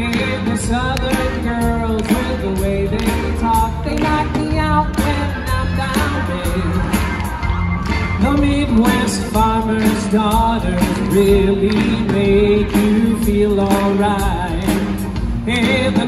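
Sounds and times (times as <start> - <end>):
person singing: 0.0 - 16.0
rock and roll band playing: 0.0 - 16.0.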